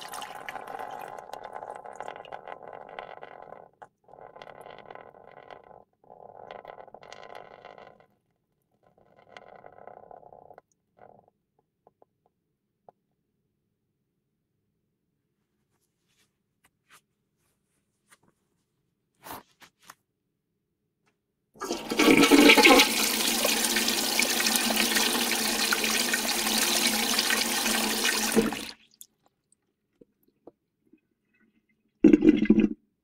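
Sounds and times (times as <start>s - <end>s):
urinal flushing water rush: 0.0s - 2.0s, 21.6s - 28.8s.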